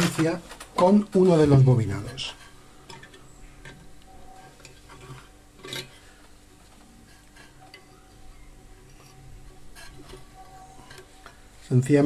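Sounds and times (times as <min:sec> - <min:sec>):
small metallic clicks and scrapes: 0:02.0 - 0:08.0, 0:08.8 - 0:11.4.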